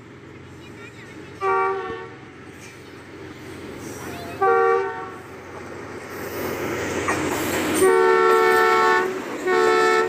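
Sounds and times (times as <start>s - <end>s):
diesel locomotive running: 0.0s - 10.0s
locomotive horn blast: 1.4s - 2.2s, 4.3s - 5.2s, 7.8s - 10.0s.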